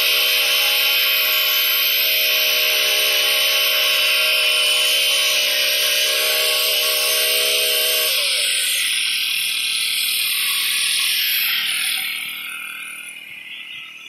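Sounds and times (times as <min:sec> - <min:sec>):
tines digging into soil: 0:00.0 - 0:08.6
brush cutter engine running: 0:00.0 - 0:14.0.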